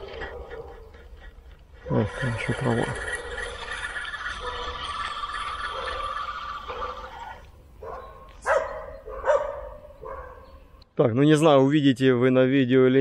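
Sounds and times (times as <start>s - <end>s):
dogs barking: 0.0s - 10.6s
spinning reel winding: 2.2s - 7.2s.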